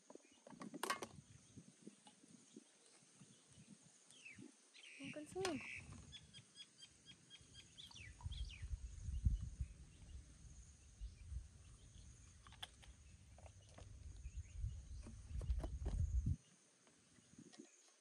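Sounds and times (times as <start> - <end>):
wind rumbling on microphone: 0.2 - 4.6, 7.8 - 16.5.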